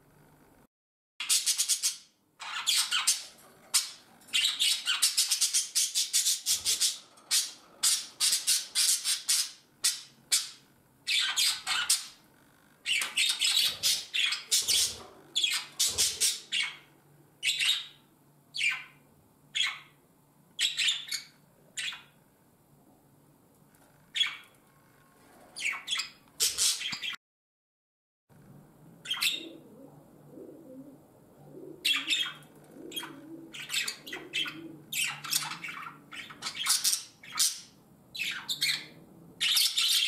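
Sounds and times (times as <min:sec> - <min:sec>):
budgerigar calling: 0:01.2 - 0:12.2, 0:12.8 - 0:18.0, 0:18.6 - 0:20.0, 0:25.6 - 0:27.2, 0:29.0 - 0:29.6, 0:31.8 - 0:40.0.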